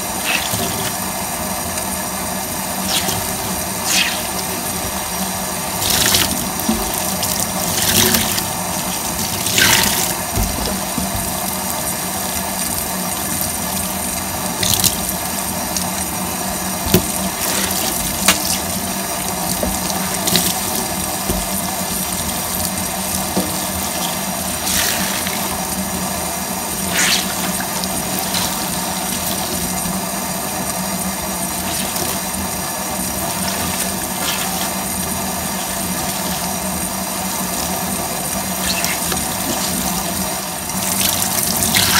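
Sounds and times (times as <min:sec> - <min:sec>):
sponge squelching: 0:00.0 - 0:01.2, 0:02.8 - 0:04.6, 0:26.7 - 0:29.8, 0:31.5 - 0:36.7.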